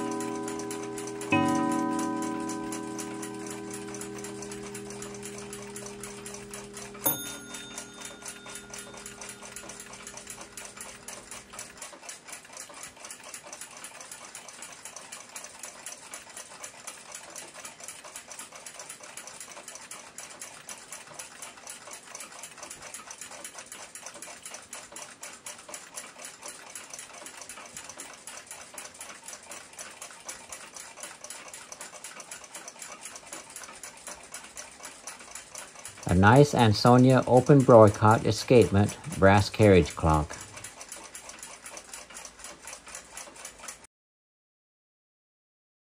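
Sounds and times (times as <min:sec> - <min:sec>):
clock ticking: 0:00.0 - 0:43.9
sharp click with ringing tone: 0:02.4 - 0:11.4.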